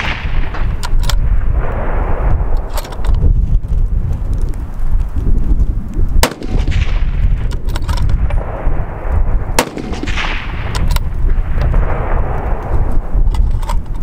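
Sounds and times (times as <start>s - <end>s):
rifle shots: 0.0s - 3.0s, 6.2s - 12.8s.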